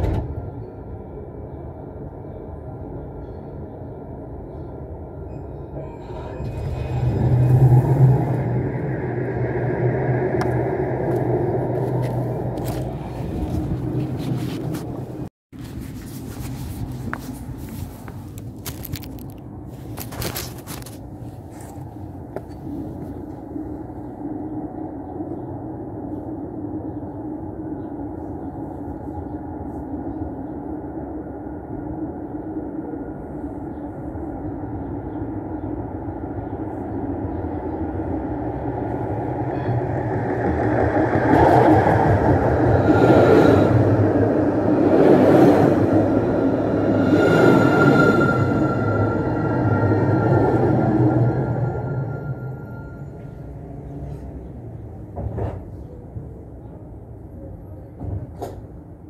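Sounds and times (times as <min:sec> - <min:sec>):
tram rumbling on rails: 0:00.0 - 0:59.0
thin tram whine: 0:06.0 - 0:23.3, 0:38.8 - 0:54.2.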